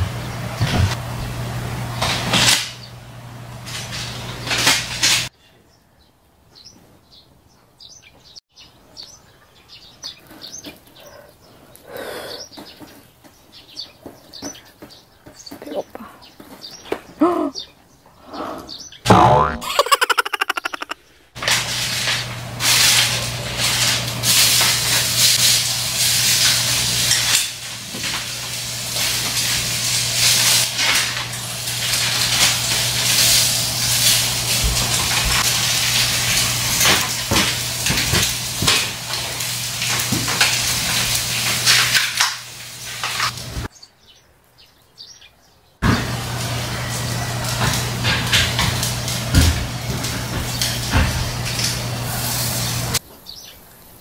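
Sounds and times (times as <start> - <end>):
food sizzling on a grill plate: 21.4 - 43.7, 45.8 - 53.0.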